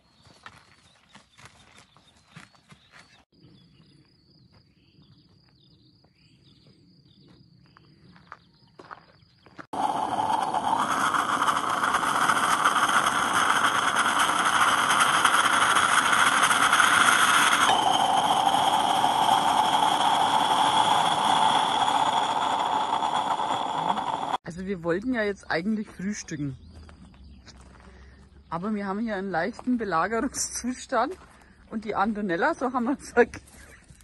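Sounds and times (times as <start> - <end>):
moka pot hissing sputter: 9.6 - 24.4.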